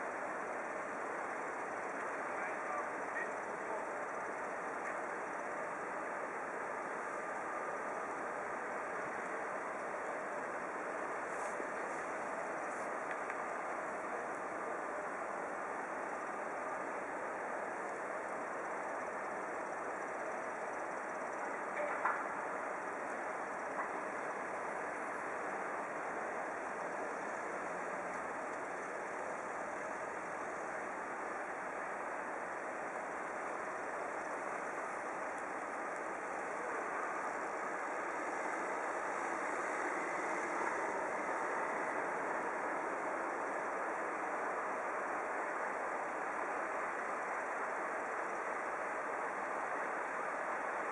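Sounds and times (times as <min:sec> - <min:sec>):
distant engines idling: 0:00.2 - 0:50.8.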